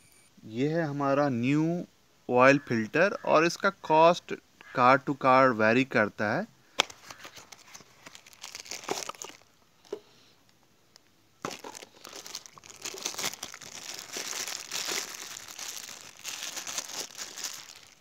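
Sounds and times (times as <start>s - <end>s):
plastic bag crinkling: 7.0s - 10.0s, 11.4s - 18.0s.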